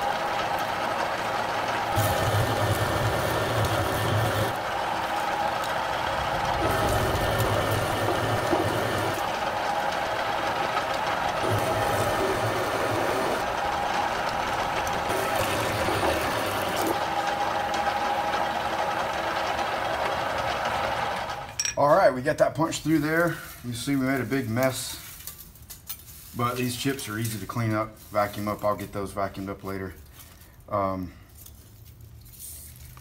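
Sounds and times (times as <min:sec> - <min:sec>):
drill press hum: 0:00.0 - 0:21.8
deeper machine hum: 0:00.0 - 0:24.6
drill bit grinding steel: 0:01.8 - 0:18.5.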